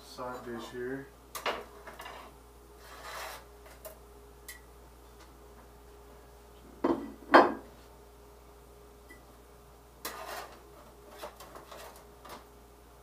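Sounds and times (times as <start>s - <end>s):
faint steady hum: 0.0s - 13.0s
soft scrape: 2.1s - 3.5s, 10.1s - 12.0s.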